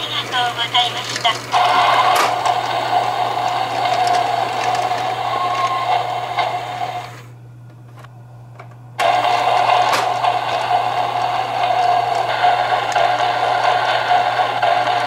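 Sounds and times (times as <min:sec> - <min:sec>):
toy train clicking on track: 0:00.0 - 0:07.2, 0:09.0 - 0:15.0
toy train motor whirring: 0:00.0 - 0:07.3, 0:09.0 - 0:15.0.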